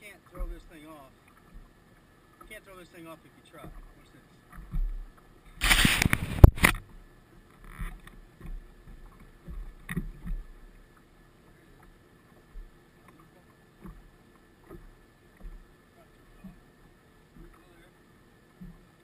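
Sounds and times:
brush and rustle on microphone: 5.6s - 6.8s.

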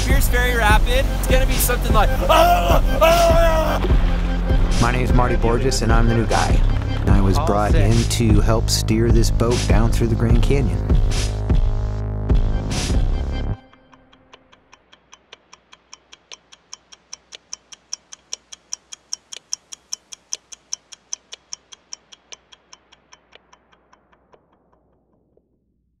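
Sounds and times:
clock ticking: 0.0s - 4.0s, 13.6s - 25.5s
background music: 0.0s - 14.9s.

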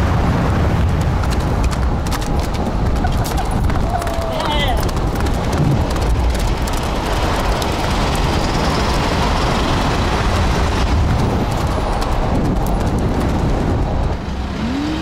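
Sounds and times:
moving vehicle rumble and hiss: 13.4s - 15.0s.

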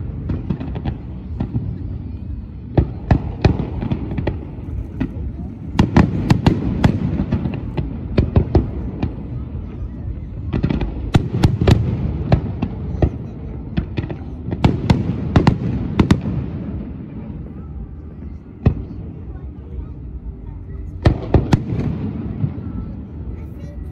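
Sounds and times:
fireworks bangs and crackles: 0.0s - 23.9s.

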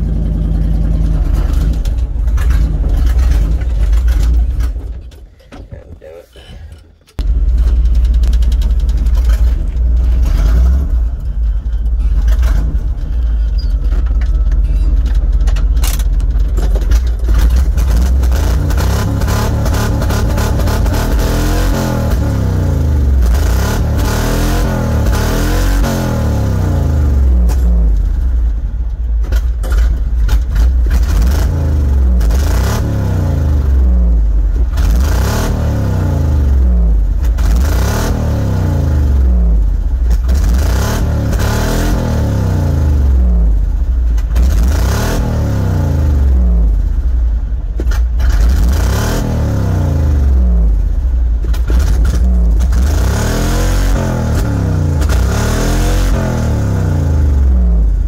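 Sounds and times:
truck engine revving: 0.0s - 6.2s, 7.1s - 28.5s, 29.3s - 58.0s
engine crackles: 0.0s - 58.0s.

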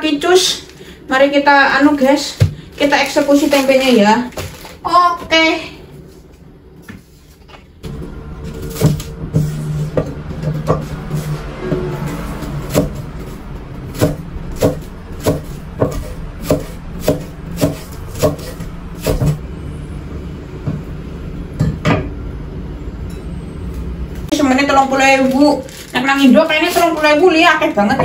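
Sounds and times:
low steady hum: 0.0s - 28.0s
knife chopping on wooden board: 14.0s - 19.4s.

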